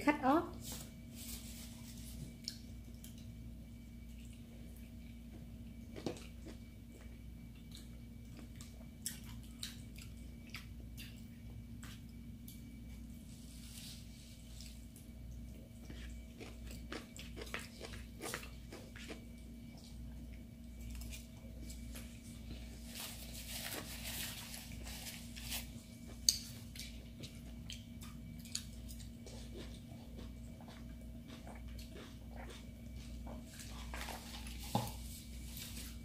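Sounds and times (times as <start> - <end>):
faint steady hum: 0.0 - 36.0
chewing and biting: 5.9 - 12.7, 15.0 - 22.0, 26.1 - 34.6
papery rustle: 22.8 - 25.8.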